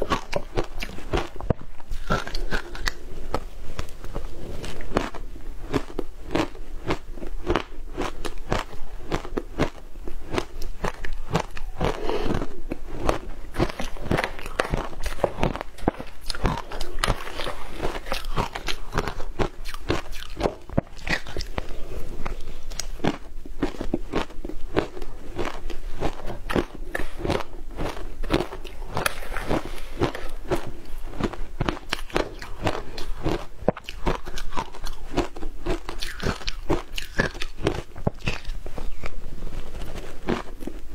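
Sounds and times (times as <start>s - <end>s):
crushed ice being chewed: 0.0s - 40.9s.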